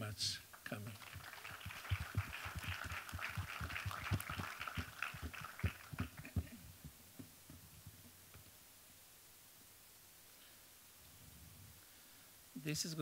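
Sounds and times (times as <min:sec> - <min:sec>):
audience applause: 0:00.6 - 0:06.6.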